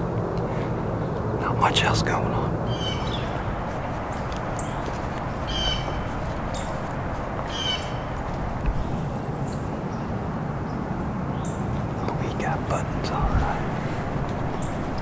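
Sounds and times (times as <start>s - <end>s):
steady background hiss: 0.0s - 15.0s
bird calling: 2.6s - 10.0s, 11.4s - 15.0s.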